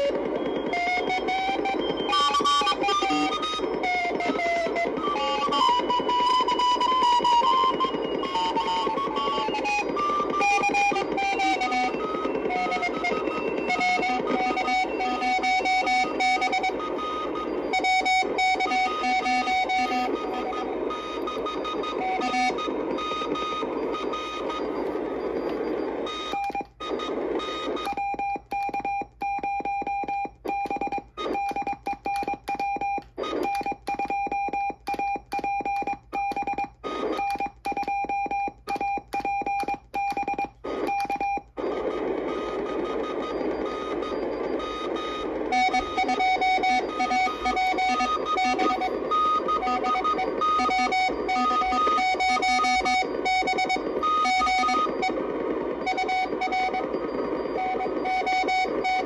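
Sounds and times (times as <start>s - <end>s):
radio band noise: 0.0s - 28.5s, 36.6s - 37.2s, 39.8s - 59.0s
faint incoming morse code: 0.0s - 59.0s
morse sidetone keyed in dots and dashes: 0.0s - 59.0s.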